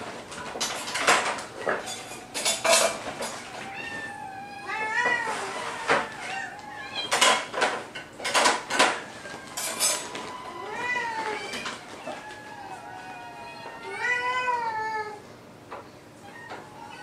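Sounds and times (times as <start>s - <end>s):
dishes clinking and clattering: 0.0s - 4.1s, 4.7s - 12.4s
kittens meowing: 3.4s - 7.5s, 8.8s - 15.2s, 16.2s - 17.0s.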